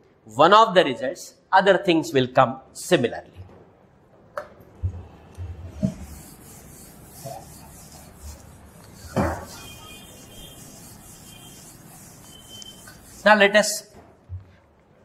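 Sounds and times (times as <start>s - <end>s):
duster wiping a whiteboard: 5.7s - 13.9s.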